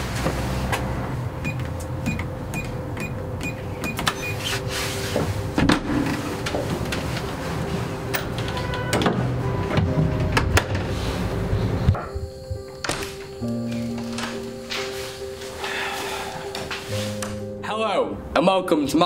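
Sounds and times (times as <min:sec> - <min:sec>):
keypad beeping: 0:01.4 - 0:04.5
door clicks: 0:12.7 - 0:14.5.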